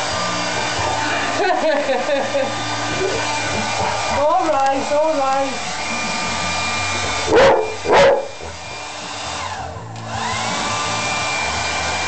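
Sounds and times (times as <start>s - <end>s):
hair dryer blowing: 0.0s - 12.0s
dog barking: 7.3s - 8.4s.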